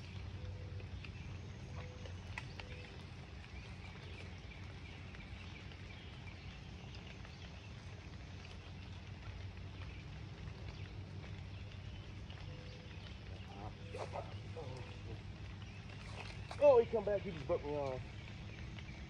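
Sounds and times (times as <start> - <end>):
faint animal calls: 1.5 - 3.2, 12.4 - 16.6.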